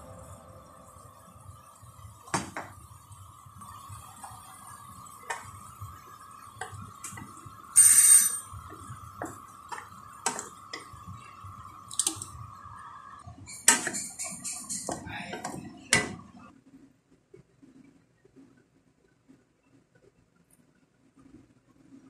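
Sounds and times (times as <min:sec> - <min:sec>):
faint high hum: 0:00.0 - 0:02.2.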